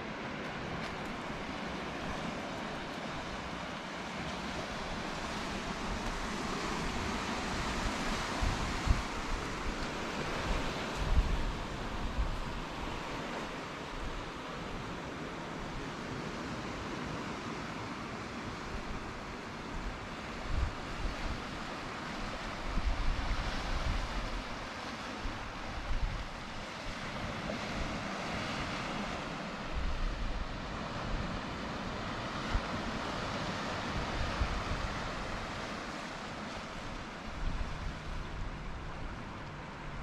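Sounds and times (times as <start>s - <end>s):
surf washing over rocks: 0.0s - 40.0s
wind buffeting microphone: 4.3s - 14.9s, 18.6s - 40.0s.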